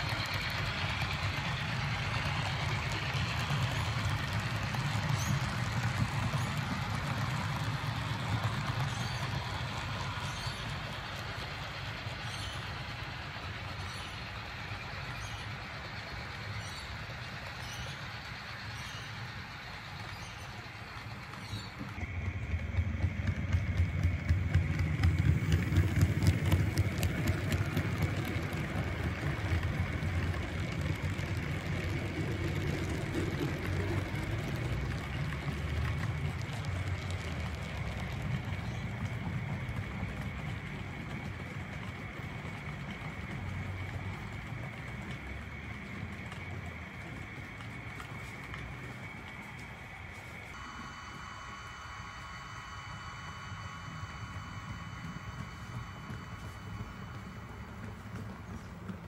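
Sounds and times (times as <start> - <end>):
wheels clicking over rail joints: 0.0 - 50.7, 51.4 - 59.0
model train running hum: 0.0 - 59.0
high whine: 44.1 - 59.0.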